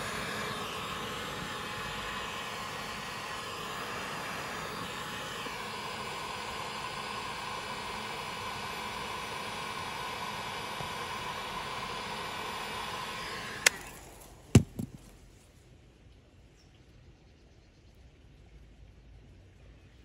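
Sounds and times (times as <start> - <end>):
hot-air gun blowing: 0.0 - 15.1.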